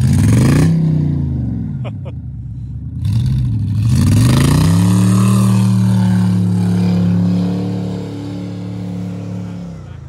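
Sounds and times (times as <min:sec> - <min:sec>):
truck engine revving: 0:00.0 - 0:02.0, 0:03.0 - 0:10.0.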